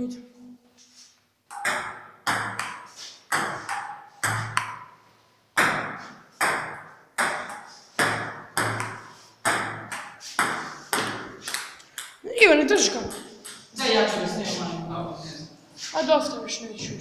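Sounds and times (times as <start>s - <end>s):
table tennis ball hits: 1.5s - 5.0s, 5.6s - 12.2s, 12.9s - 13.7s.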